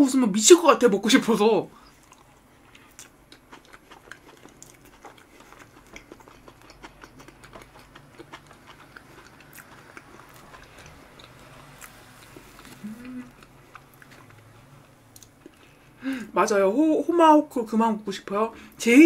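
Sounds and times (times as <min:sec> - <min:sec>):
person chewing: 0:01.8 - 0:16.0.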